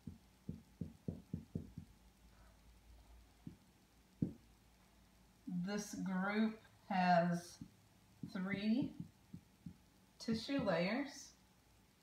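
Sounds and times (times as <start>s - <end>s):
marker tapping on whiteboard: 0.0s - 2.0s, 3.4s - 3.6s, 4.2s - 4.4s.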